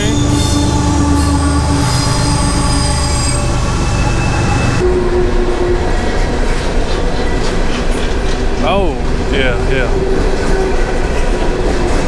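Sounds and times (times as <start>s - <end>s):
train wheels squealing: 0.0s - 4.9s
train low rumble: 0.0s - 12.0s.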